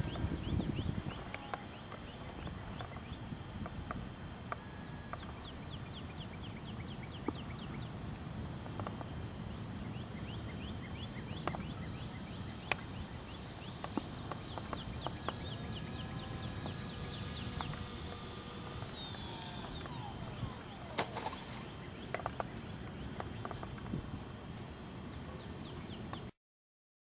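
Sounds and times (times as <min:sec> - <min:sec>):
wind rumble on microphone: 0:00.0 - 0:25.2
sharp clicks: 0:13.7 - 0:21.4.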